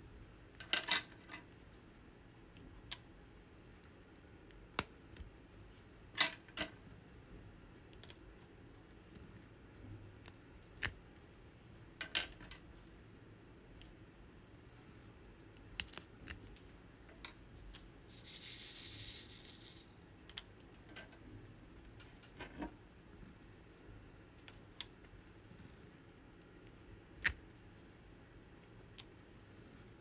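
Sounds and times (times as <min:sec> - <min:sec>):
plastic pen clicks and taps: 0:27.2 - 0:27.4.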